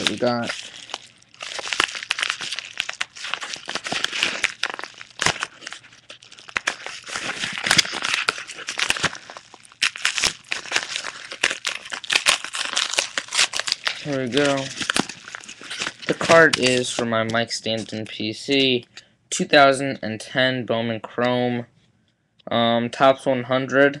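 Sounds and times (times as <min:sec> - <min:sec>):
package wrapping crinkling and tearing: 0:00.0 - 0:18.7.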